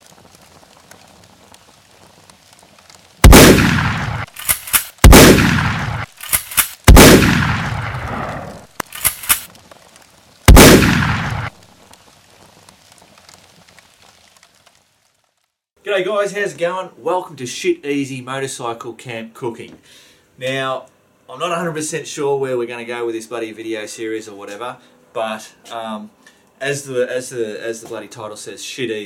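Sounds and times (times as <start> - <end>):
loud sudden impacts: 3.2 - 4.3, 10.5 - 11.5
short sharp clicks: 4.3 - 5.0, 6.2 - 6.8, 8.8 - 9.5.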